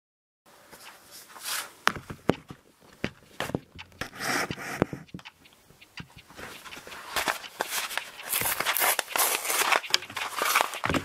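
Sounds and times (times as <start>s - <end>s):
sharp clicks and taps: 1.9s - 11.0s
paper bag rustling and crinkling: 6.4s - 11.0s.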